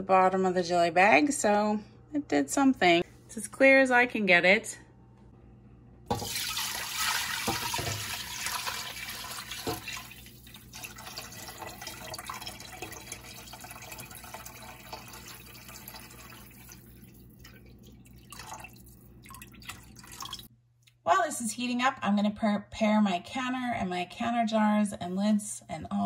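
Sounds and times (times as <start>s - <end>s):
broth pouring into a pot: 6.1s - 20.5s
liquid dripping: 6.1s - 20.5s.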